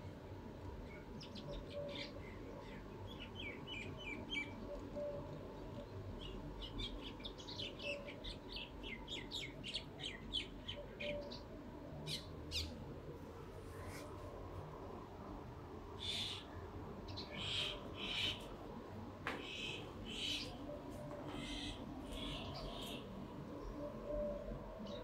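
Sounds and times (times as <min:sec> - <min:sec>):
small birds chirping: 0:19.4 - 0:23.1.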